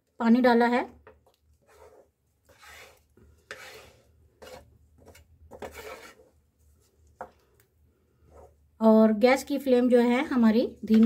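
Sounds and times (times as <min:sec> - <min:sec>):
spatula scraping and sloshing: 0:01.2 - 0:07.4, 0:08.2 - 0:08.6.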